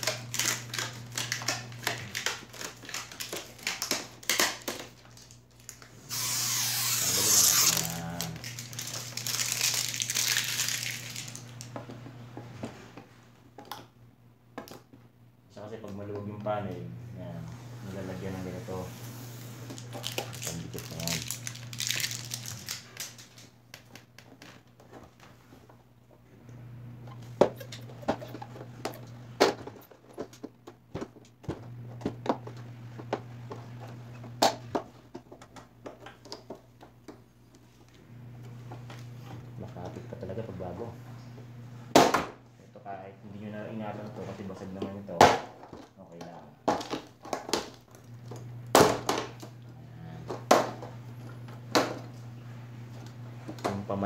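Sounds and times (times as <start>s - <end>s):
plastic sheet crinkling: 0.0s - 11.7s, 19.6s - 23.6s.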